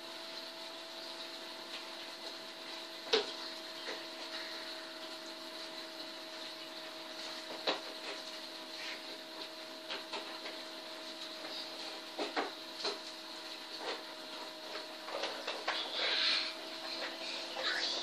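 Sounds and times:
background hum and hiss: 0:00.0 - 0:18.0.

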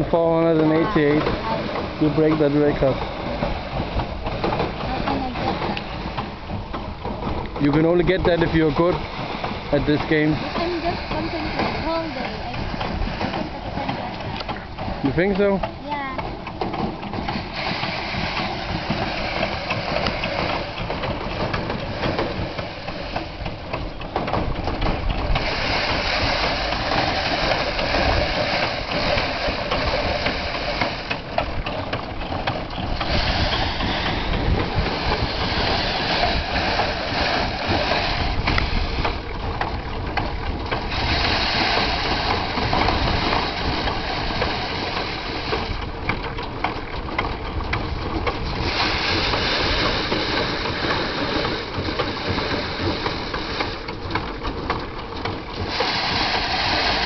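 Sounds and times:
rice thresher drum whirring: 0:00.0 - 0:57.0
rushing noise of stalks: 0:17.0 - 0:46.0, 0:47.9 - 0:53.9, 0:55.6 - 0:57.0.

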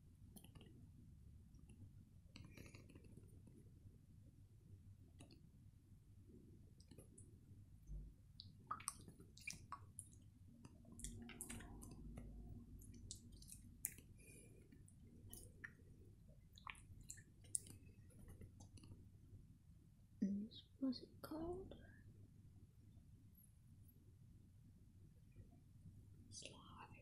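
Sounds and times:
slime squishing: 0:08.5 - 0:18.8.

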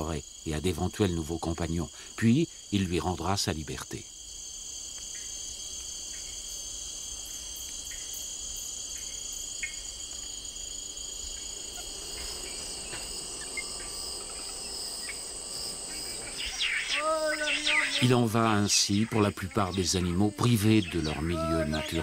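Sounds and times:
insects chorus: 0:00.0 - 0:22.0
faint ticks: 0:04.9 - 0:06.3, 0:07.6 - 0:08.1.

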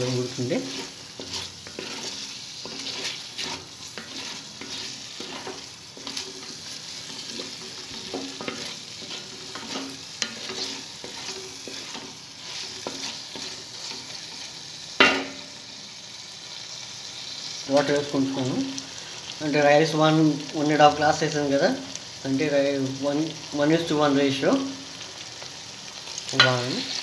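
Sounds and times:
spatula scraping pot: 0:00.0 - 0:14.5
chicken sizzling in oil: 0:00.0 - 0:27.0.

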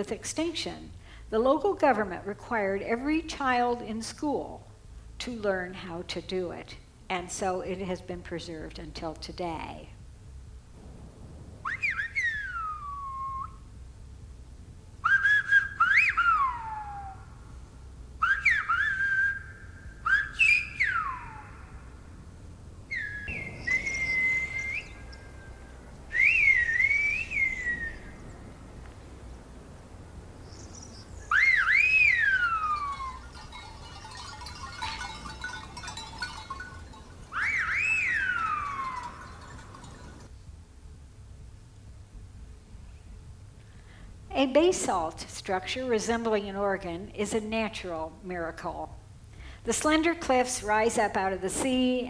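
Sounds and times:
loud whistled phrases: 0:11.6 - 0:13.6, 0:15.0 - 0:17.3, 0:18.2 - 0:21.8, 0:22.9 - 0:28.4, 0:30.9 - 0:33.3, 0:37.3 - 0:39.5.

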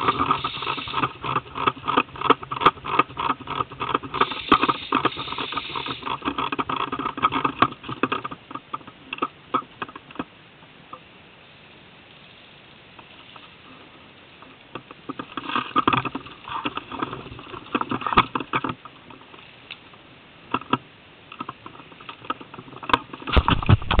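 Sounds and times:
bumps and deep thuds: 0:23.3 - 0:24.0.

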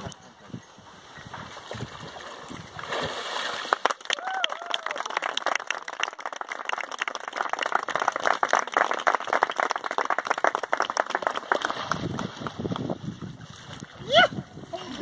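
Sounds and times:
people clapping: 0:03.6 - 0:12.9.

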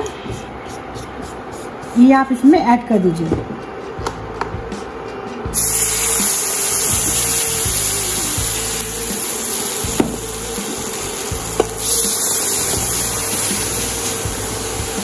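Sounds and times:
milk sizzling in a hot pan: 0:05.6 - 0:15.0.

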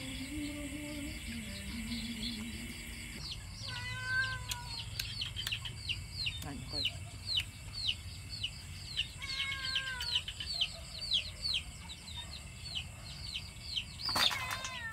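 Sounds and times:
chicks peeping: 0:00.0 - 0:04.0.

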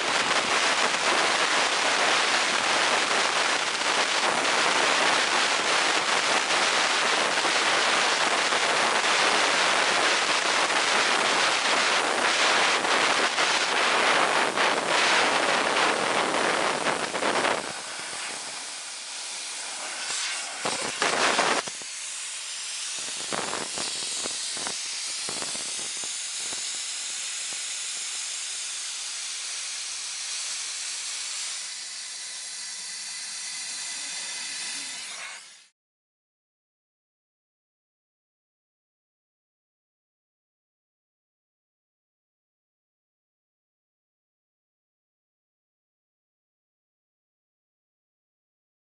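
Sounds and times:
compressed air hissing: 0:00.0 - 0:35.7.

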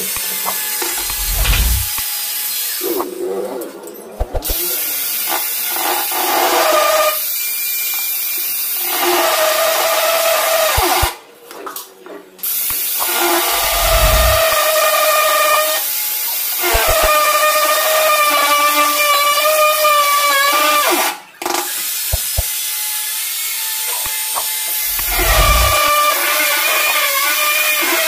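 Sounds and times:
angle grinder cutting stone: 0:00.8 - 0:02.0, 0:16.7 - 0:17.1, 0:24.9 - 0:26.0.

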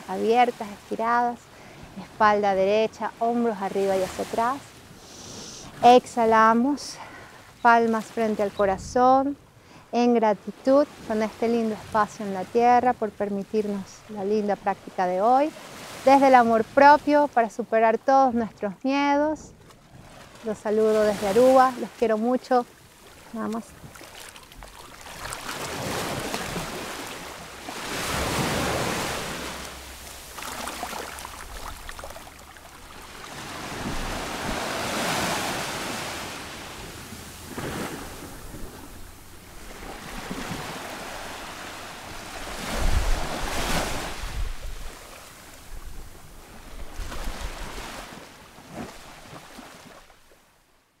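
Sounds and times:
sea waves washing in: 0:19.8 - 0:50.3
wind rumbling on microphone: 0:31.2 - 0:47.8.

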